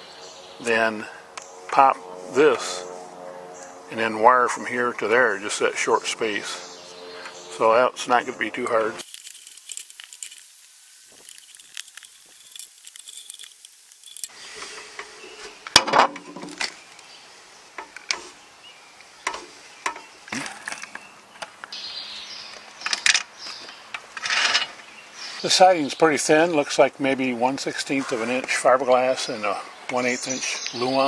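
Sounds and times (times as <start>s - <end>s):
handling noises: 9.0s - 16.8s
screwdriver at work: 11.2s - 14.3s.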